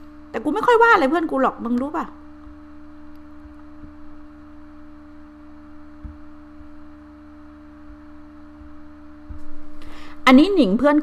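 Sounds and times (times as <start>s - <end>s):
steady low hum: 0.0s - 11.0s
soft low thumps: 5.7s - 7.0s, 7.8s - 10.0s.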